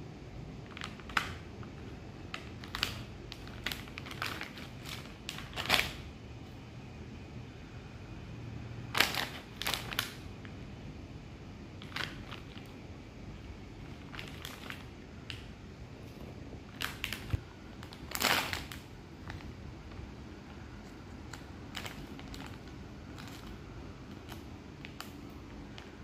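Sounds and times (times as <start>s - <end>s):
plastic bag crinkling: 0.6s - 6.1s, 8.9s - 10.3s, 11.8s - 12.8s, 13.8s - 15.5s, 16.1s - 26.0s.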